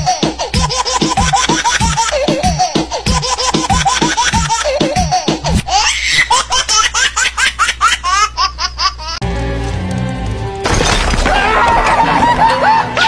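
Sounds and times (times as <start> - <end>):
rhythmic laughter: 0.0 - 9.2, 11.9 - 13.0.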